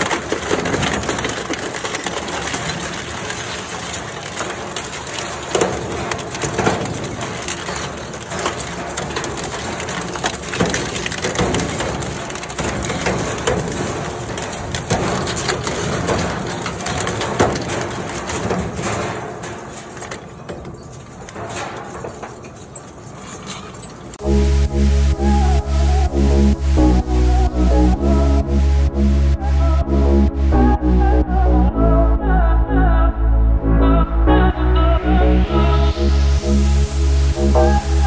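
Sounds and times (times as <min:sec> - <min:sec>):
metal cracks and clanks: 0:00.0 - 0:24.2
industrial shredder crushing metal: 0:00.0 - 0:31.0.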